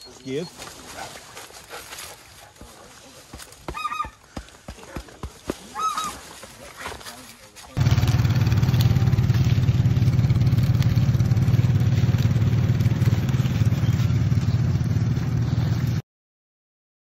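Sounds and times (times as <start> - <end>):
atv engine running: 7.8 - 16.0.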